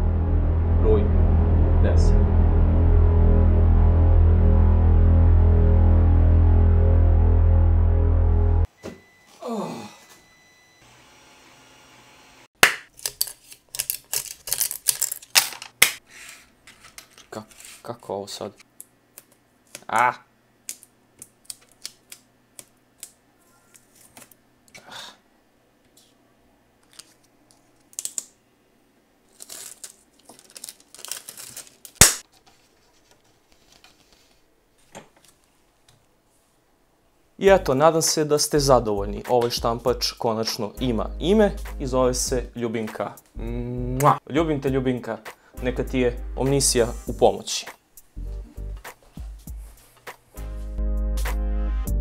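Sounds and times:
packing tape ripping: 0:12.8 - 0:16.0, 0:27.8 - 0:28.3, 0:29.3 - 0:32.3.

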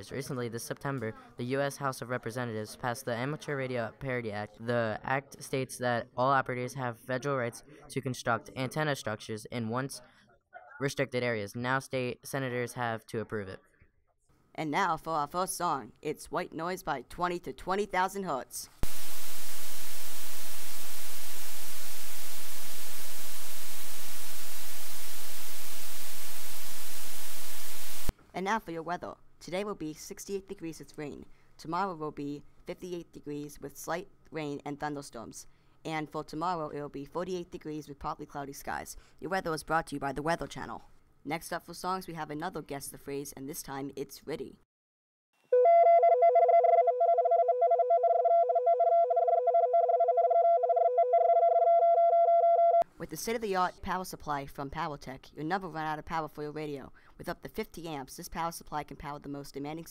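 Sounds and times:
two-tone radio data signal: 0:18.8 - 0:28.1
white noise hiss: 0:18.8 - 0:28.1.

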